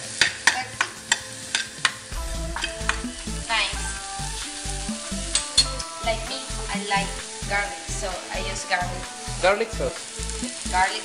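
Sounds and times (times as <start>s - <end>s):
peppers sizzling in oil: 0.0s - 11.0s
music with bass beat: 2.1s - 10.9s.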